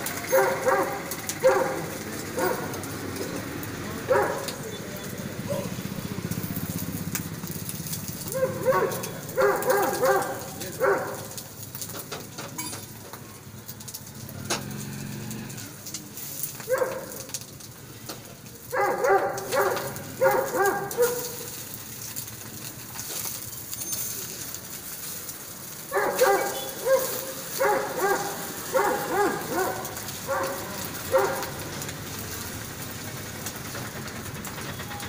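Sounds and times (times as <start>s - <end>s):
light clinks: 12.5s - 13.0s.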